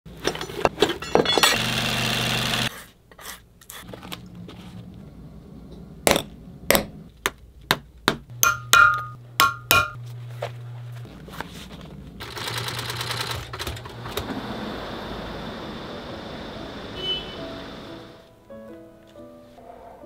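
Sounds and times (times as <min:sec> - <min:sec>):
hammer tapping metal punch: 0:07.7 - 0:10.0.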